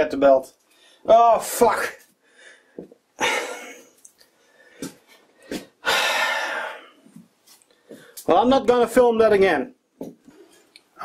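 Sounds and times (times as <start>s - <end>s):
man sighing heavily: 4.7s - 7.0s.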